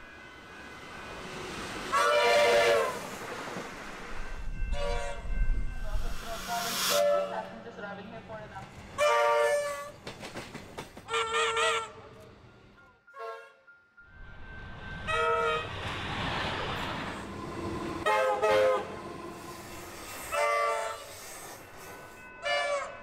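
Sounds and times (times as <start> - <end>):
train rushing past: 0.0 - 11.2, 14.1 - 23.0
train air horn blasts: 1.9 - 3.0, 4.7 - 5.4, 6.8 - 7.5, 9.0 - 9.9, 11.1 - 12.0, 13.1 - 13.7, 15.1 - 15.7, 18.0 - 19.0, 20.2 - 21.1.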